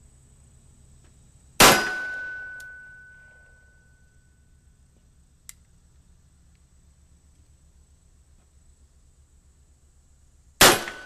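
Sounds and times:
revolver shot with ringing: 0:01.6 - 0:03.9, 0:10.6 - 0:11.0
sharp metallic click: 0:02.5 - 0:02.8.

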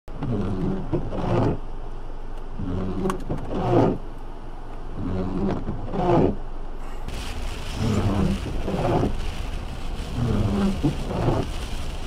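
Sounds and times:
wiper rubbing squeal on glass: 0:00.2 - 0:01.6, 0:02.6 - 0:04.0, 0:05.0 - 0:06.4
wiper motor groan: 0:07.1 - 0:12.0.

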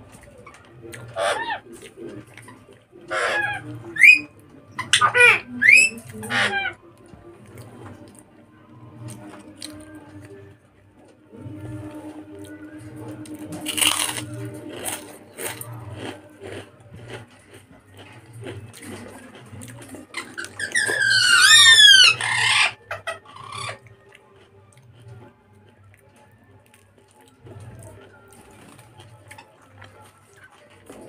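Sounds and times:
high squealing calls: 0:01.1 - 0:01.7, 0:03.1 - 0:06.8, 0:20.1 - 0:23.8
chewing and lip smacks: 0:13.2 - 0:21.0
loud crunch of bite: 0:13.6 - 0:20.4.

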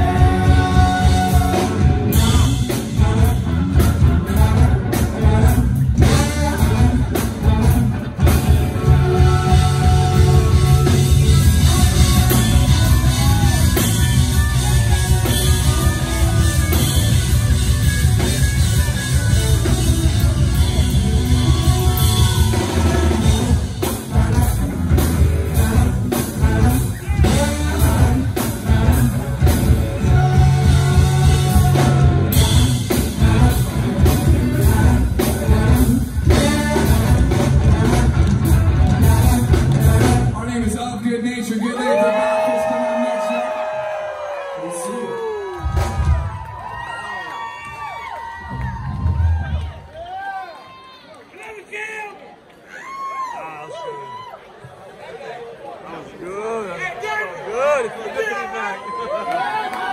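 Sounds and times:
person singing: 0:00.0 - 0:17.6, 0:18.8 - 0:40.6
live rock band: 0:00.0 - 0:50.0.

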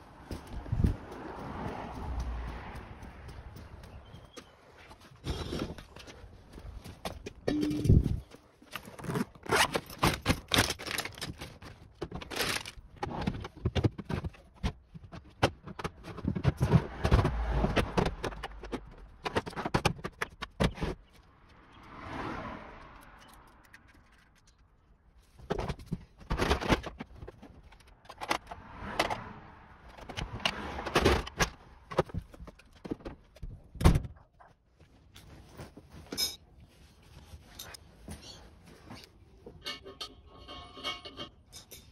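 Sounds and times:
tools rummaged and handled: 0:06.9 - 0:17.2, 0:35.1 - 0:41.9.

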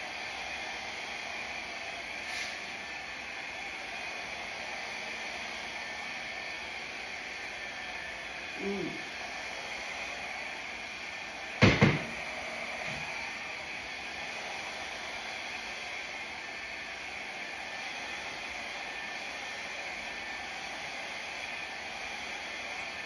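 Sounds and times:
hair dryer blowing: 0:00.0 - 0:23.0.

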